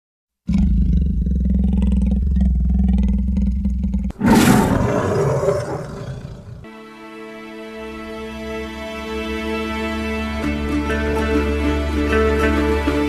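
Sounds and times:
bright roar: 0.5s - 6.7s
low growling roar: 0.5s - 6.7s.

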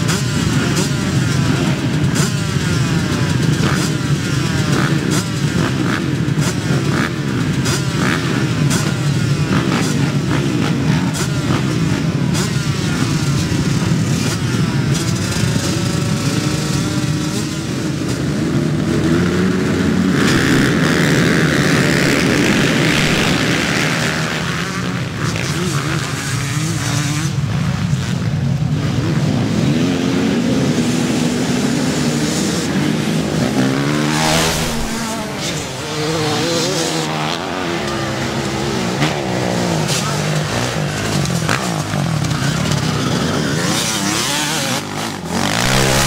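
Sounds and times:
motocross bikes revving: 0.0s - 46.0s.

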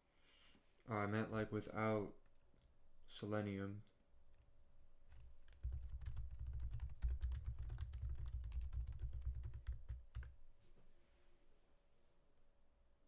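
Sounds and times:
fast typing on keyboard: 5.1s - 10.3s.

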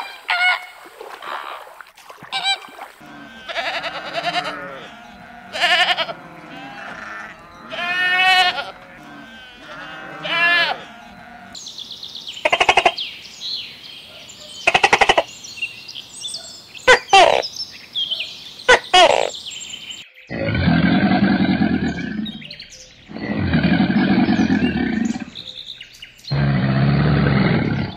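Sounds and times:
birds chirping: 2.4s - 27.9s
crocodile growling: 20.3s - 22.5s, 23.1s - 25.4s, 26.3s - 27.9s.

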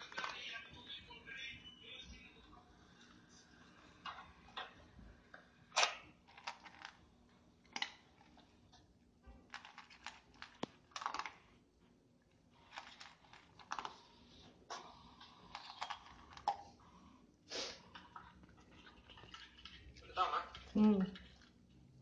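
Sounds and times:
dog crunching kibble: 5.7s - 7.0s, 9.5s - 11.5s, 12.6s - 14.2s, 14.9s - 16.8s.

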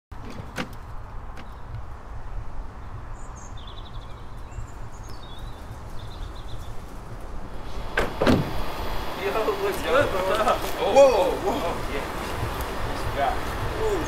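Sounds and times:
low street rumble: 0.1s - 14.0s
bird chirping: 2.7s - 7.0s.

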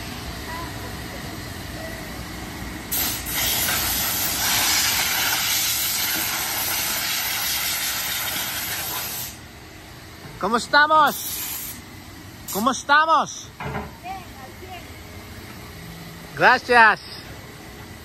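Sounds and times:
vacuum hose sucking air: 2.9s - 9.4s, 11.1s - 11.8s.

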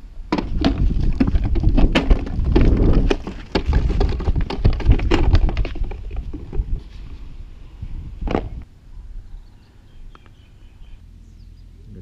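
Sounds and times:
wind on microphone: 0.0s - 10.2s
plastic bottle knocking on dirt: 0.3s - 6.8s, 8.2s - 8.6s.

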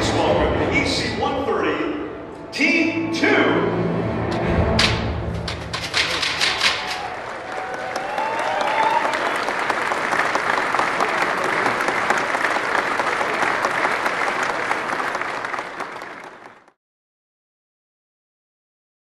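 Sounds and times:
audience applauding: 5.8s - 16.8s.

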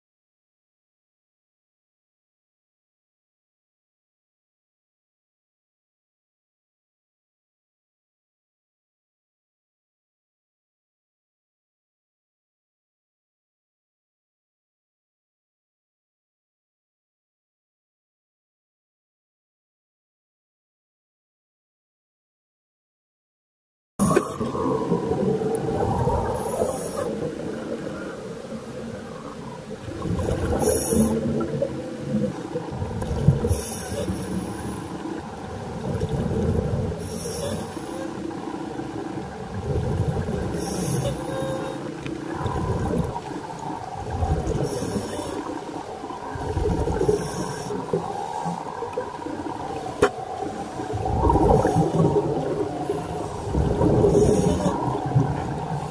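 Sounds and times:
exhaled bubbles bursting: 24.0s - 27.6s, 29.8s - 34.3s, 42.1s - 45.4s, 46.2s - 48.1s, 48.8s - 55.9s
underwater low rumble: 24.0s - 55.9s.

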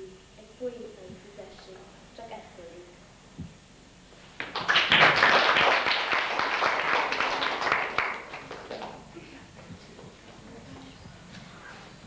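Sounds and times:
audience applauding: 4.4s - 9.1s.

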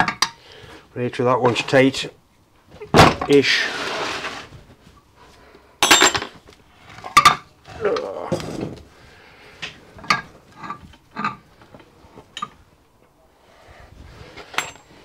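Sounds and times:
metal scrape: 3.4s - 4.6s
spanner clinking on metal: 5.8s - 6.3s, 14.5s - 14.9s.

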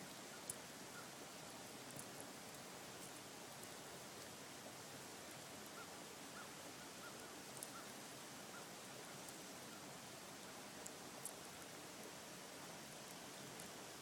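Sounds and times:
bird calling faintly: 0.0s - 1.2s, 5.6s - 11.4s
faint ticks: 0.0s - 4.4s, 7.0s - 8.0s, 8.6s - 9.8s, 10.8s - 11.7s, 13.0s - 14.0s
falling wet snow hiss: 0.0s - 14.0s.

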